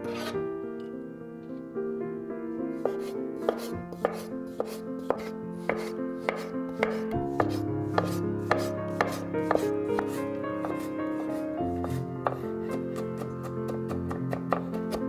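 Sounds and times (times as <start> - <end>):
knife slicing on wooden board: 0.0 - 0.4, 2.8 - 12.4
soft background music: 0.0 - 15.0.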